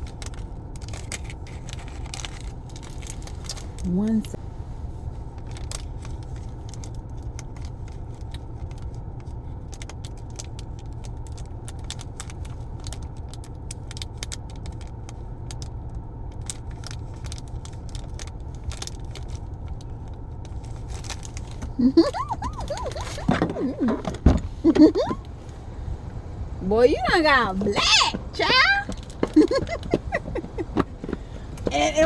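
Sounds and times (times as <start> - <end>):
small clicks and rattles: 0.0 - 3.9
car engine idling: 0.0 - 32.0.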